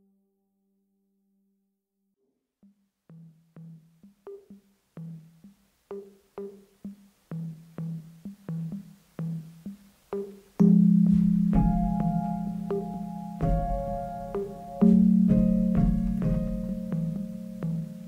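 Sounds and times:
pitched percussion strikes: 10.6 - 18.0
loud sustained low chord: 10.7 - 18.0.

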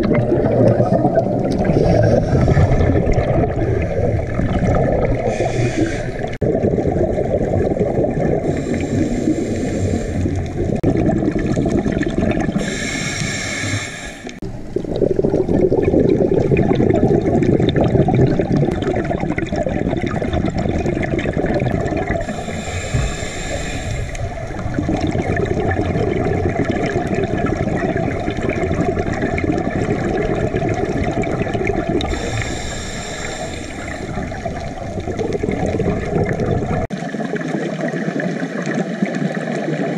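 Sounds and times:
high hiss: 12.6 - 14.4, 22.3 - 24.2
regulator exhaust bubbles: 14.4 - 23.3, 24.0 - 37.0.

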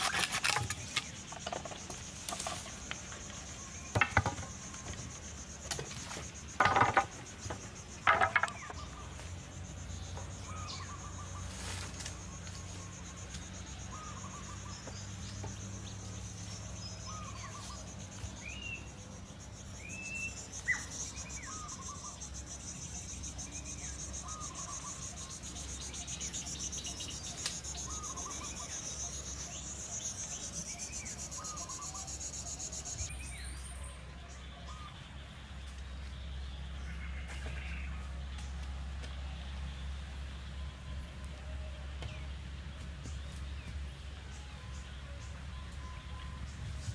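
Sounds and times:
bamboo poles knocking: 0.0 - 8.9
insects buzzing: 0.0 - 33.5.

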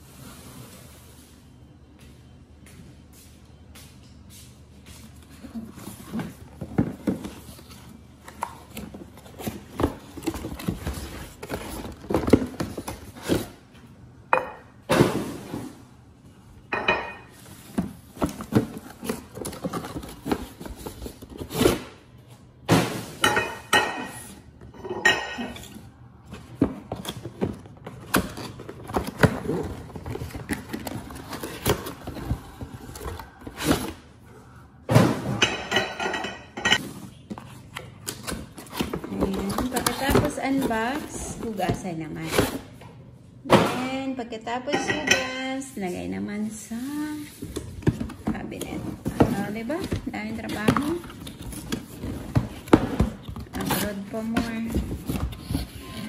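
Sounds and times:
cardboard boxes knocking and scraping: 8.7 - 13.6, 17.5 - 21.9, 47.5 - 56.0
dishes clinking: 16.7 - 17.4, 23.2 - 25.7, 35.3 - 36.8, 44.7 - 45.6.

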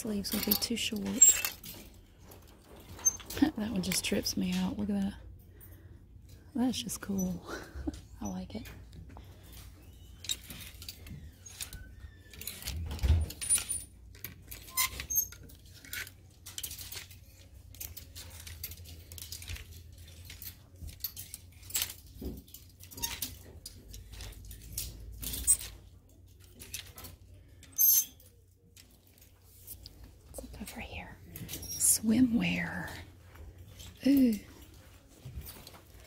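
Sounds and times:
plastic hangers clacking on metal rack: 0.0 - 5.1, 10.1 - 30.2.

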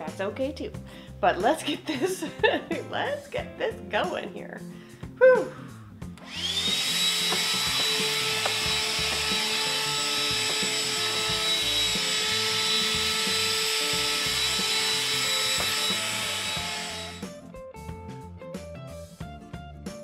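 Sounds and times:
background music: 0.0 - 20.0
handheld vacuum cleaner whine: 6.2 - 17.2.

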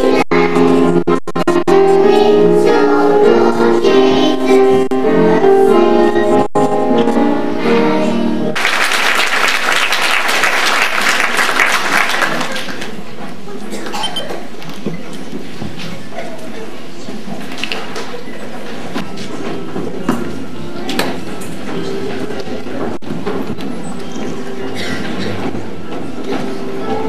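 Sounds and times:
children's choir singing: 0.0 - 8.6
audience applause: 8.6 - 13.0.

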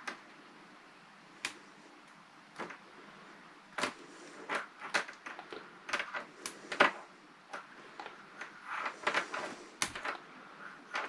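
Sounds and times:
plastic insulation clicks and crackles: 2.5 - 2.8, 3.7 - 11.0.

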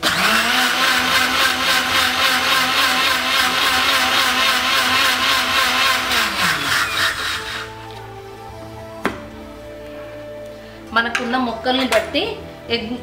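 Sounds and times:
mixer grinder motor whine: 0.0 - 7.9.

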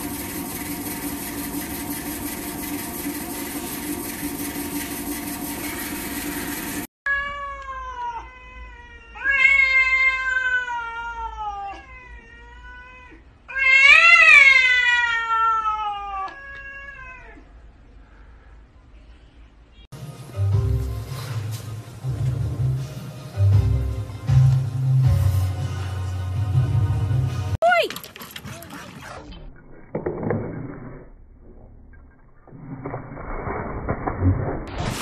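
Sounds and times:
robot vacuum whirring: 0.0 - 6.9
cat yowling: 7.1 - 17.5.

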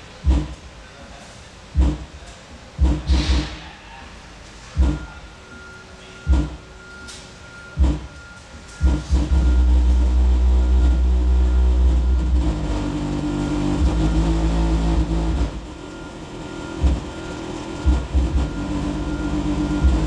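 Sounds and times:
bass-heavy song through subwoofer: 0.2 - 0.6, 1.8 - 2.2, 2.8 - 3.6, 4.8 - 5.1, 6.3 - 6.6, 7.8 - 8.1, 8.8 - 16.0, 16.7 - 20.0.

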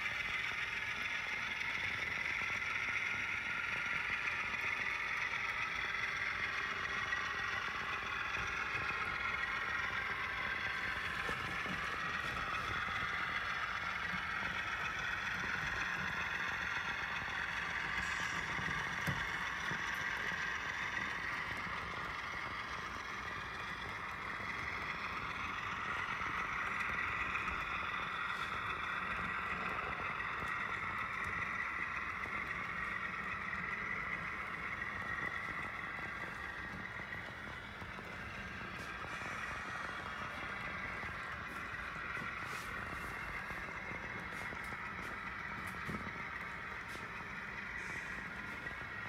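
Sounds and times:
model train wheels whirring on rails: 0.0 - 49.0.

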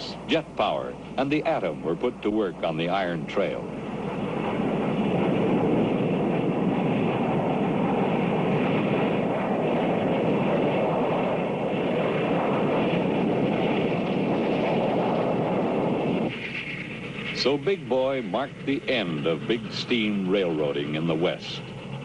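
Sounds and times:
freight train passing: 0.0 - 5.6, 11.8 - 22.0.

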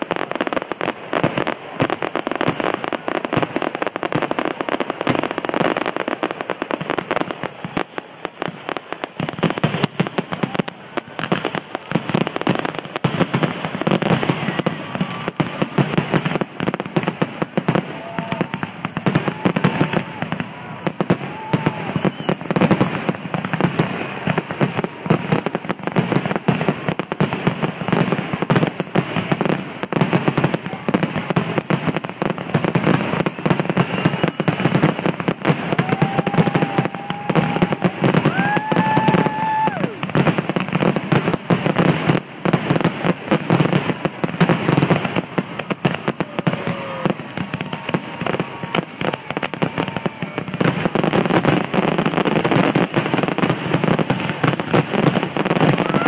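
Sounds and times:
fireworks bursting and crackling: 0.0 - 56.0.

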